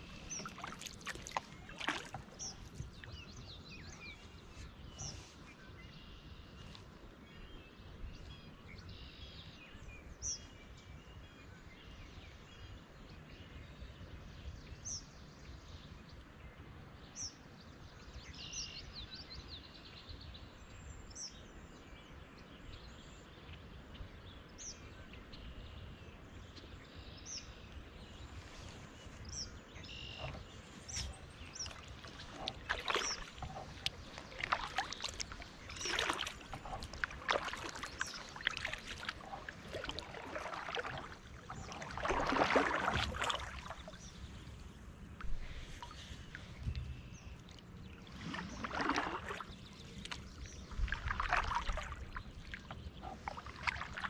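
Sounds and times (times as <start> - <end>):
kayak paddle splashing water: 0.0 - 5.2, 29.9 - 54.0.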